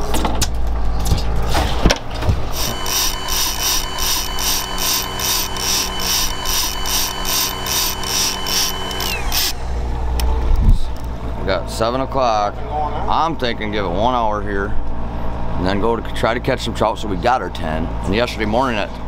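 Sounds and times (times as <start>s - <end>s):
electric motor pulsing whine: 2.5s - 10.2s.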